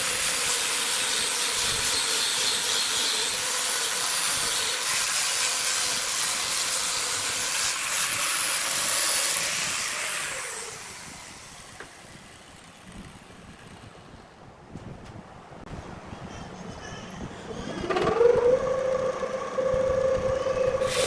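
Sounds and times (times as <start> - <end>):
falling whine: 17.2 - 21.0
low rumble: 17.2 - 21.0
sanding disc hissing on wood: 18.1 - 21.0.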